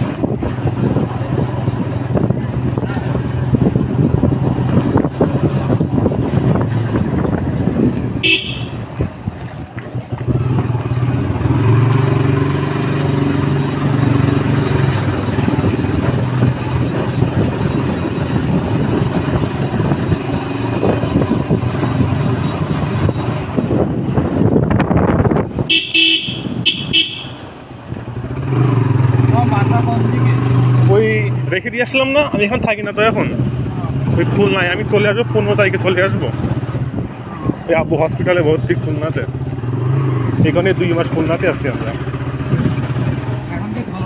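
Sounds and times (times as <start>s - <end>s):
wind noise on microphone: 0.0s - 29.2s, 32.2s - 41.4s, 42.1s - 44.0s
motorcycle engine running: 0.0s - 31.2s, 38.8s - 44.0s
horn toot: 8.2s - 8.9s, 25.7s - 27.5s.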